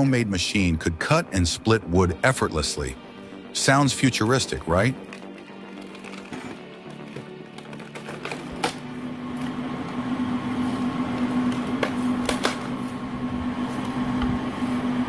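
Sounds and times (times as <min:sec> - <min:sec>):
log splitter humming: 0:04.2 - 0:15.0
log cracking: 0:04.9 - 0:08.8.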